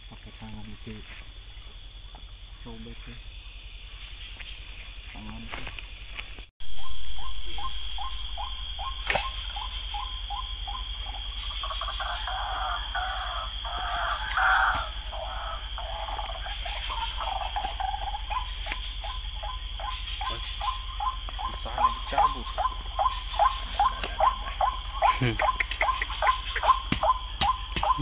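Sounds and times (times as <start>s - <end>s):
frogs calling: 0.0s - 28.0s
high insect chirring: 0.0s - 28.0s
sharp click: 9.0s - 9.4s.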